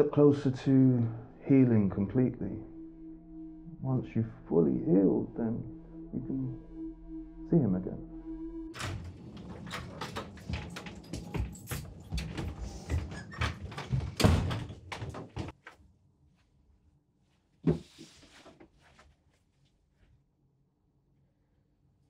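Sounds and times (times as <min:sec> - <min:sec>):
footsteps: 0:09.3 - 0:14.2.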